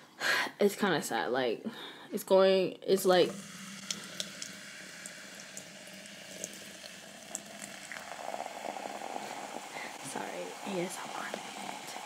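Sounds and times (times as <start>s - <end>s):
soda pouring and fizzing: 3.0s - 12.0s.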